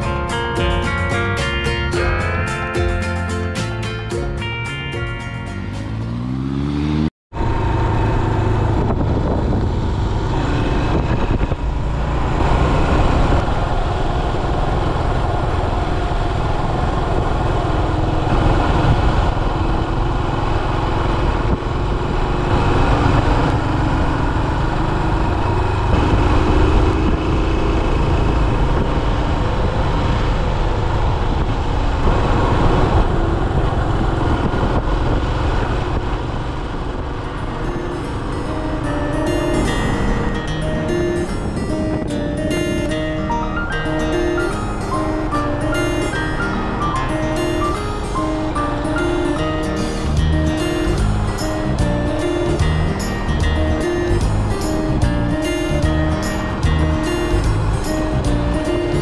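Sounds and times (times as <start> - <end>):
motorcycle engine running: 5.5 - 42.4, 50.0 - 59.0.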